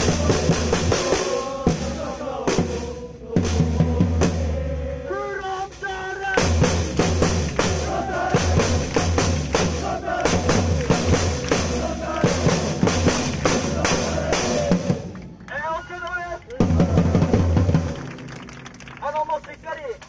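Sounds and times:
snare and bass drums beating: 0:00.0 - 0:04.6, 0:06.3 - 0:15.1, 0:16.5 - 0:18.2
fans singing a chant: 0:00.0 - 0:15.2, 0:16.6 - 0:17.6.

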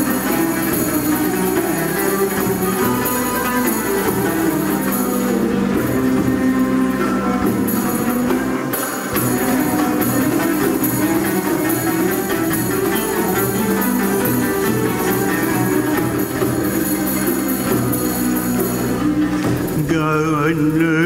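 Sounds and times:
violins: 0:00.0 - 0:21.0.

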